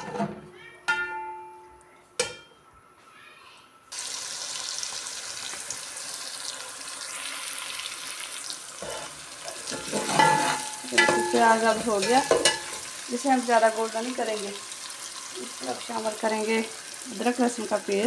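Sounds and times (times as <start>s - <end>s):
onions sizzling in hot fat: 3.9s - 18.0s
metal ladle knocking pot: 9.7s - 11.4s.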